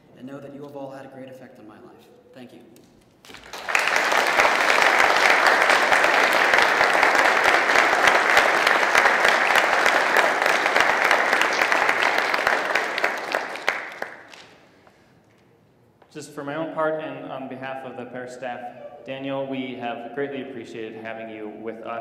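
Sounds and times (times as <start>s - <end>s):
congregation applauding: 3.2s - 15.1s.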